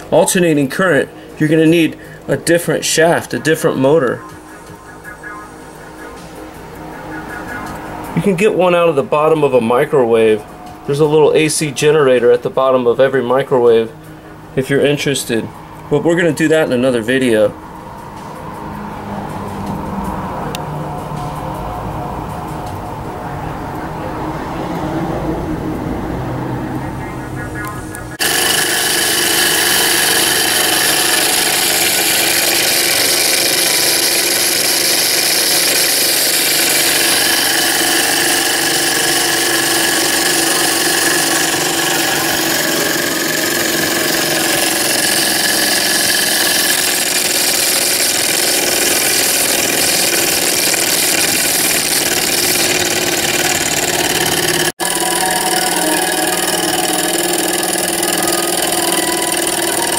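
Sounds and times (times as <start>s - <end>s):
small engine mechanical whir: 27.7s - 59.9s.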